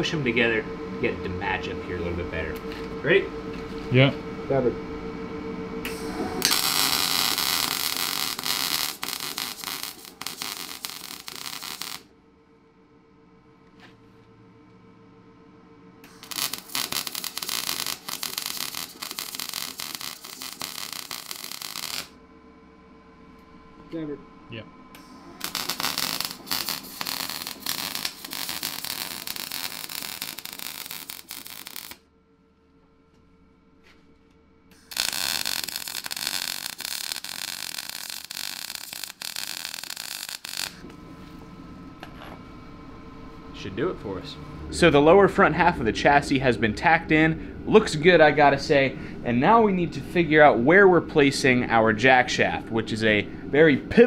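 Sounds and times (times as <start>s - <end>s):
welding arc crackling and hissing: 5.9s - 12.1s, 16.0s - 22.2s, 25.0s - 32.0s, 34.7s - 41.0s.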